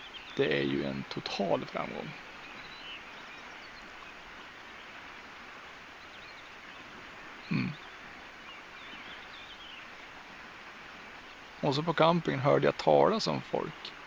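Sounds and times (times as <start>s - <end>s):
faint outdoor background noise: 0.0s - 14.0s
man humming: 7.5s - 7.8s.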